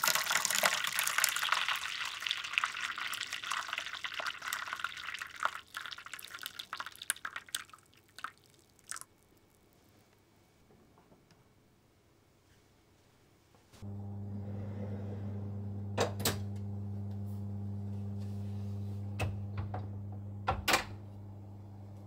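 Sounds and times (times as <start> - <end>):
oven fan humming: 13.8 - 22.0.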